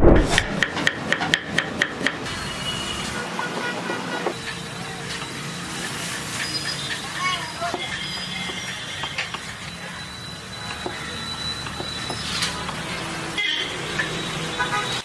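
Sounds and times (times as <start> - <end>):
traffic noise: 0.0 - 15.0
car horn toots: 13.4 - 13.8, 14.6 - 15.0.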